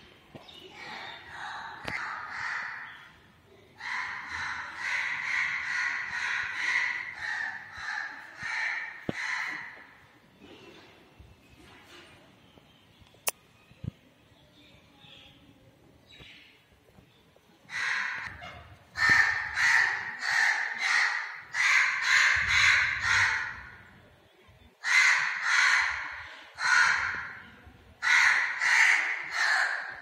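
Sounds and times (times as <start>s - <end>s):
crows cawing: 24.8s - 27.4s.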